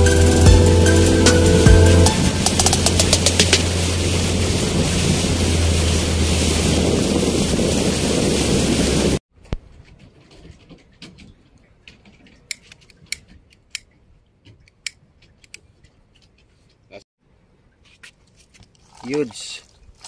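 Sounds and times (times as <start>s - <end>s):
boat engine hum: 0.0s - 9.2s
wind and water rush: 0.0s - 9.2s.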